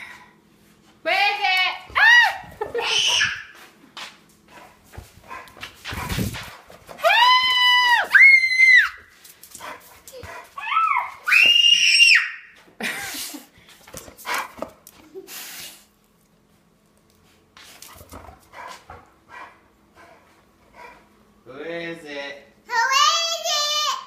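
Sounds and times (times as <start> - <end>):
toddler shrieking: 2.0 - 3.5, 10.6 - 12.4.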